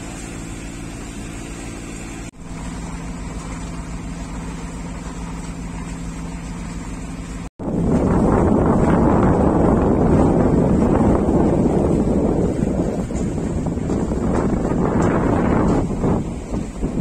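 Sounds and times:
boat engine humming: 0.0 - 17.0
wind buffeting microphone: 7.6 - 17.0.

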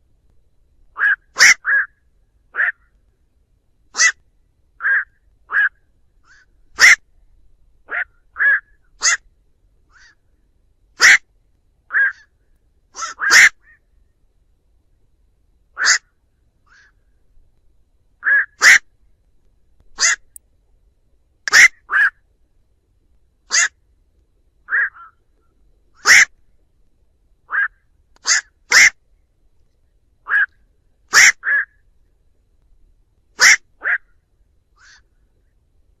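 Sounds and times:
heron calling: 0.9 - 3.0, 3.9 - 4.2, 4.8 - 7.1, 7.9 - 9.3, 9.9 - 10.2, 11.0 - 11.3, 11.9 - 12.4, 13.0 - 13.8, 15.8 - 17.0, 18.2 - 18.9, 19.9 - 20.4, 21.5 - 22.2, 23.5 - 23.8, 24.7 - 25.2, 26.0 - 26.4, 27.5 - 29.0, 30.2 - 31.8, 33.4 - 34.2, 34.8 - 35.1.

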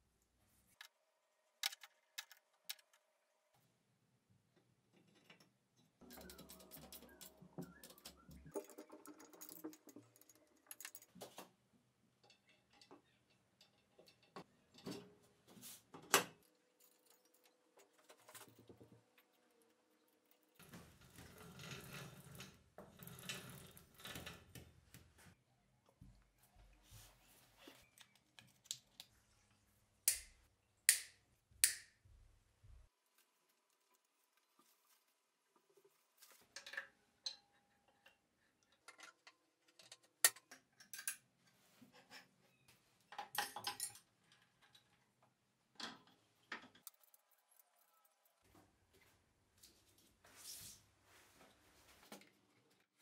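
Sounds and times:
steel parts clicking and clinking: 5.0 - 11.4.

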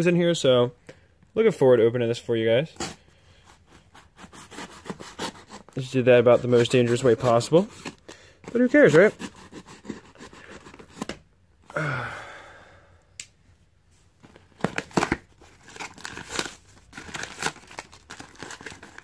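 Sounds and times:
knife cutting packing tape: 2.8 - 11.2, 14.6 - 19.0
cardboard ripping and rustling: 14.5 - 19.0.

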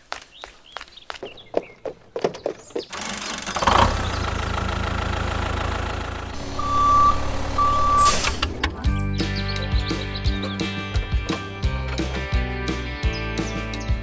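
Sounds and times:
tractor engine running: 2.7 - 10.1
reversing beeps: 6.5 - 8.4.

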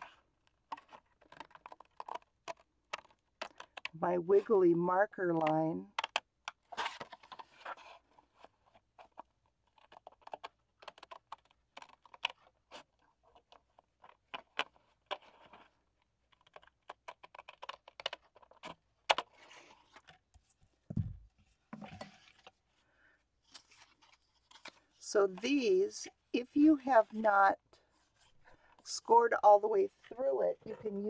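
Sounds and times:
paper rustle: 0.0 - 3.9, 6.6 - 20.7, 21.3 - 25.6
low thump of pieces laid down: 20.9 - 21.3.

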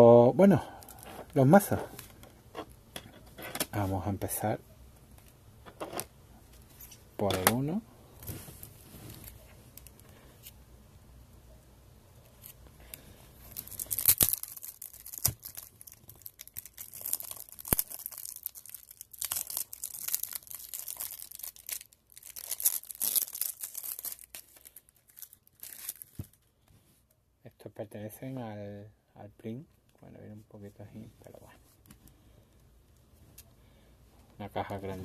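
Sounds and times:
plastic shrink-wrap tearing: 13.5 - 26.3.

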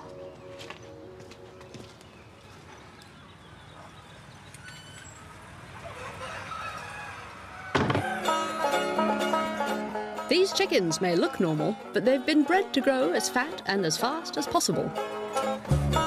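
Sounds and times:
farmyard background noise: 0.0 - 16.0
plucked banjo music: 8.0 - 16.0.

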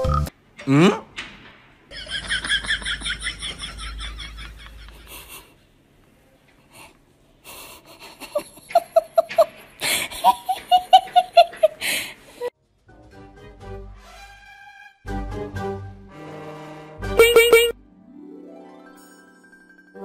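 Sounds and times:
person laughing hard: 1.9 - 5.5, 7.7 - 12.0.

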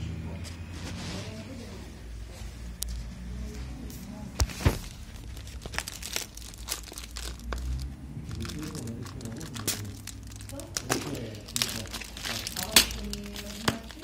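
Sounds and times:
plastic mailer crinkling: 4.4 - 14.0.

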